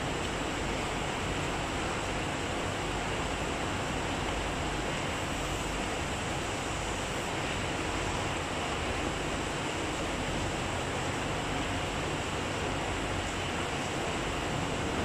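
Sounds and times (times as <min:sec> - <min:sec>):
steady rushing noise: 0:03.5 - 0:15.0.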